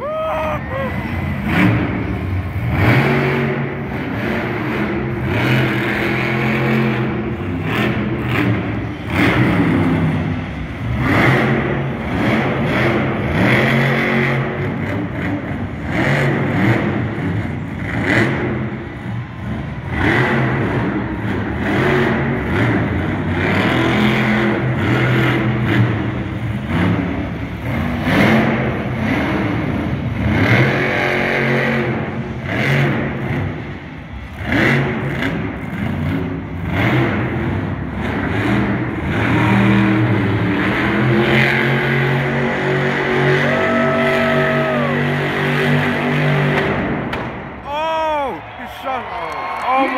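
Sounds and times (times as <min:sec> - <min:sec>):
monster truck engine revving: 0:00.0 - 0:48.4.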